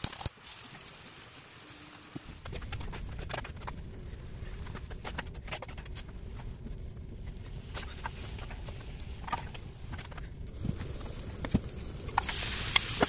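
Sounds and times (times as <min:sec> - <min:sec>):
low rumble: 0:02.3 - 0:12.6.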